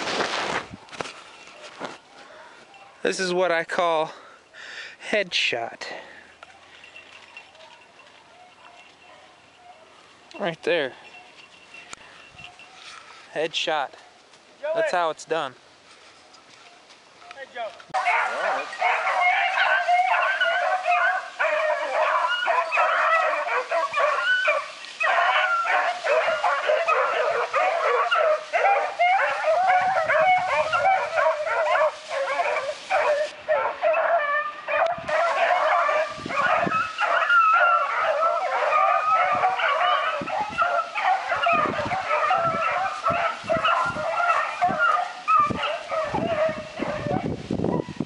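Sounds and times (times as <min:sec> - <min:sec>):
dogs baying and yipping: 0:06.0 - 0:13.3, 0:17.9 - 0:48.0.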